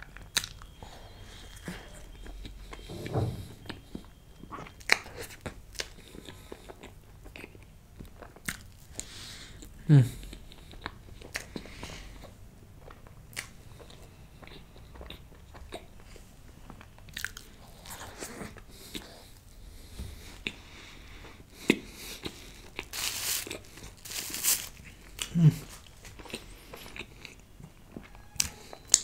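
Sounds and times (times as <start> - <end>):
wet sticky chewing: 0.0 - 0.8, 4.5 - 16.2, 16.8 - 19.5, 21.6 - 29.0.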